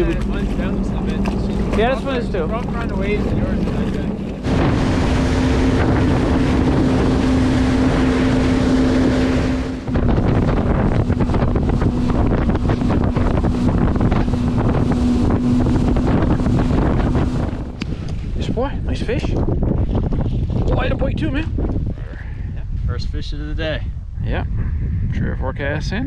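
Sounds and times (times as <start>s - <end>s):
rushing water: 0.0s - 19.2s
personal watercraft engine running: 0.0s - 22.7s
wind noise on microphone: 0.0s - 26.0s.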